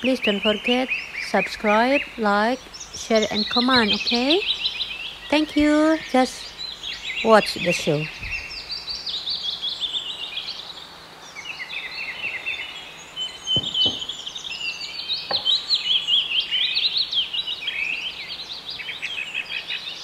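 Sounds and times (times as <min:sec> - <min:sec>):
small birds chirping: 0:00.0 - 0:20.0
short knocks: 0:13.6 - 0:14.2, 0:15.3 - 0:15.6.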